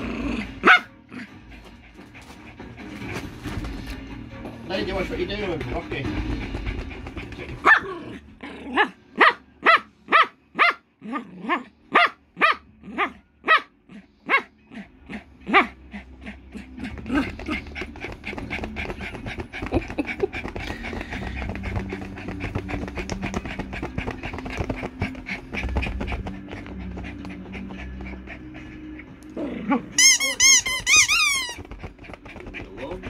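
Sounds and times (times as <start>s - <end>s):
dog barking: 0.6s - 0.9s, 7.6s - 8.0s, 8.8s - 10.9s, 11.5s - 14.5s
dog playing: 1.5s - 7.9s, 15.6s - 29.4s, 30.0s - 33.0s.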